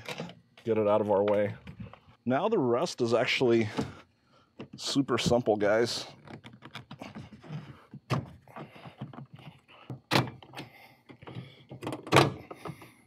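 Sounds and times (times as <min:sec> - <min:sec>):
plastic clicking and rubbing: 0:06.2 - 0:09.6.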